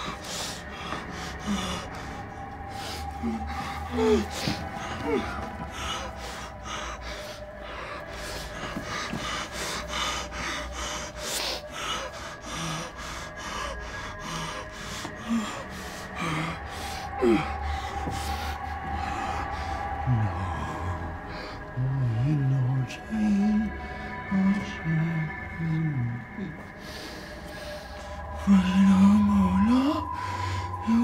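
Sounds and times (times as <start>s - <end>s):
woman breathing shakily: 0.0s - 20.0s, 26.2s - 31.0s
low steady drone: 0.0s - 31.0s.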